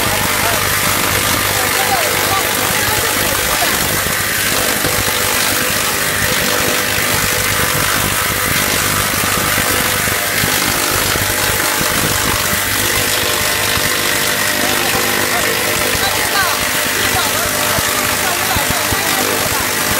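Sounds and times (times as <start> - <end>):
bowl cutter chopping meat: 0.0 - 19.9
low hum: 0.0 - 19.9.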